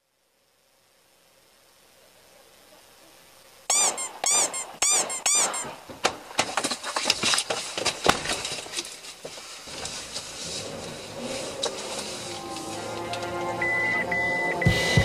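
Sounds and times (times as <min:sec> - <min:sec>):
squeaky cries: 0:03.7 - 0:05.8
knocks and clatter: 0:05.6 - 0:08.9
vehicle pulling away: 0:10.2 - 0:15.0.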